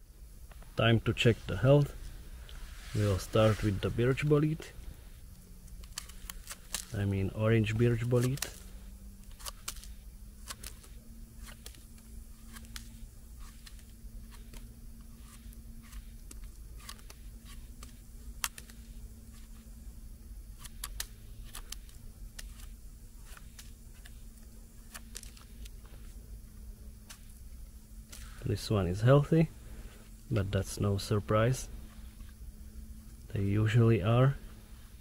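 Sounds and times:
knife scraping mushroom flesh: 5.8s - 19.7s.

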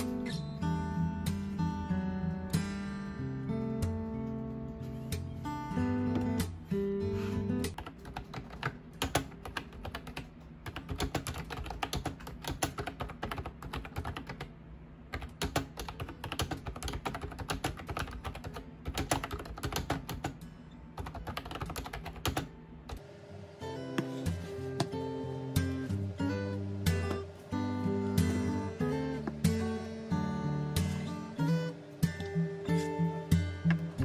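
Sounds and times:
acoustic guitar music: 0.0s - 8.1s, 22.4s - 34.0s.

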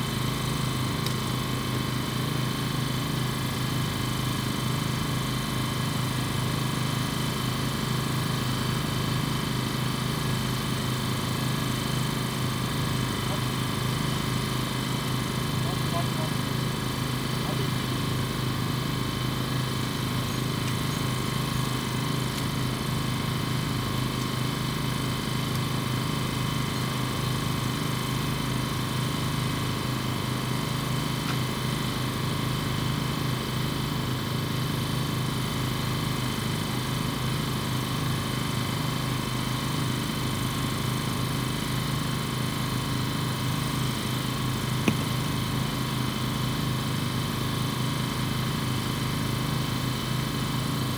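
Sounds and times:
low mechanical drone: 0.0s - 34.8s.

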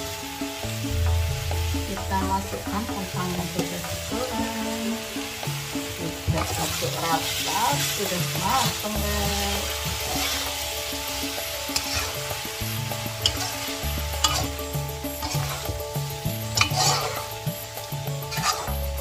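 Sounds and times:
background music: 0.0s - 19.0s
vegetables sizzling in a wok: 0.0s - 19.0s
metal spatula scraping wok: 6.2s - 19.0s.

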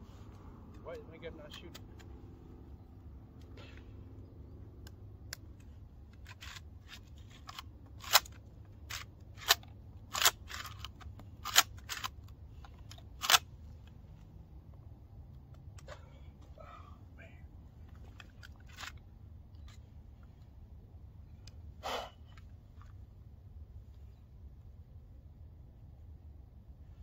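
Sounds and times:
shotgun action clicking: 4.8s - 13.5s.

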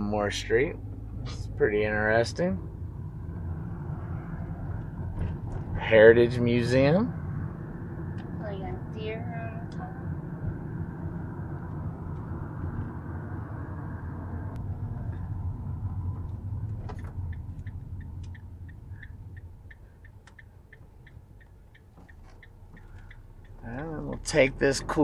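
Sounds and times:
road and engine noise in van: 0.0s - 25.0s
turn signal ticking: 7.3s - 13.1s, 14.5s - 25.0s.

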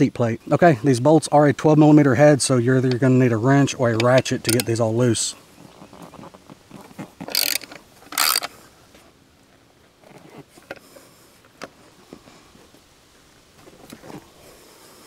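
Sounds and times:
socket ratchet clicking: 4.0s - 4.7s, 7.3s - 8.5s.

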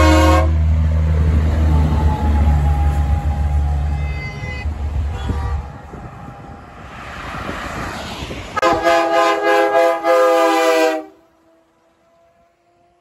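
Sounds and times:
truck air horn: 0.0s - 0.6s, 3.9s - 6.4s, 8.6s - 12.4s
passing vehicle traffic noise: 0.0s - 13.0s.

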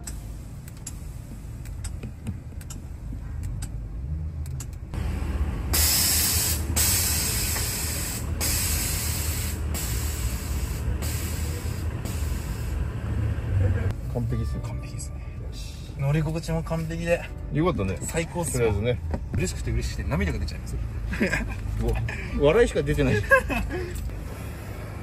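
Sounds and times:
hiss of venting air: 5.7s - 12.8s.

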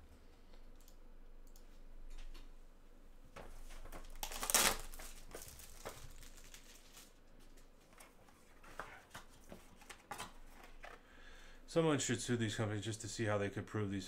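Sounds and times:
plastic shrink wrap tearing: 4.0s - 7.2s.

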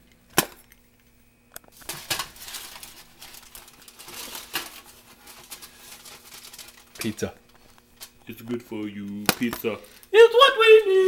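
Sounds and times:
aluminium foil crinkling: 1.7s - 10.5s.

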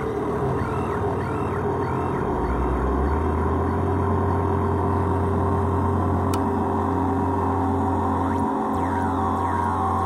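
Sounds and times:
low electronic hum: 0.0s - 10.0s
buzzy electronic drone: 7.2s - 10.0s
falling pitch sweep: 8.0s - 10.0s.

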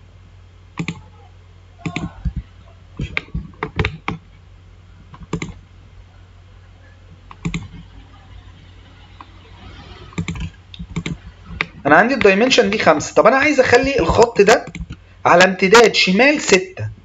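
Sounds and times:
low steady hum: 0.0s - 17.0s
mouse clicks and keystrokes: 0.8s - 1.0s, 1.8s - 2.1s, 5.1s - 5.6s, 7.3s - 7.8s, 10.1s - 11.8s, 14.7s - 15.0s.

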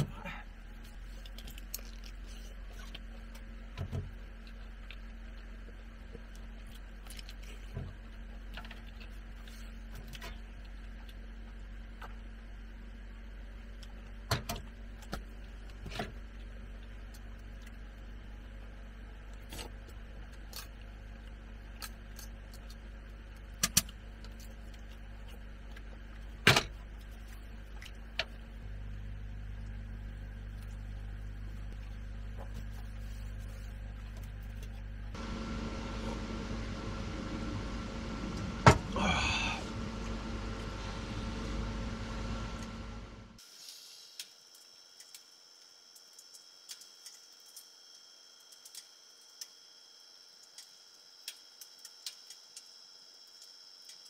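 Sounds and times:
steady low hum: 0.0s - 43.4s.

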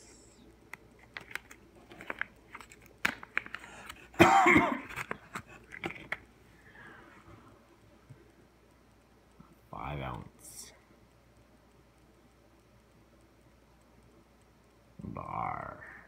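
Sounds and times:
person coughing: 4.1s - 5.0s.

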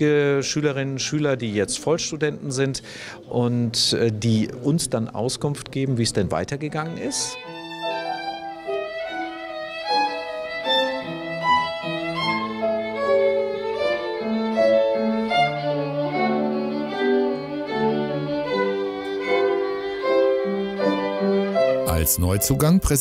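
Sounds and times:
violin playing classical piece: 6.8s - 22.9s
grand piano accompaniment: 7.1s - 23.0s.

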